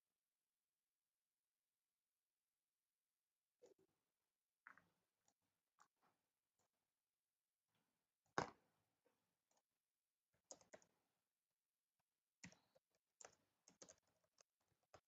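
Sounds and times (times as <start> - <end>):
faint keyboard typing: 10.4 - 11.0, 12.4 - 15.0.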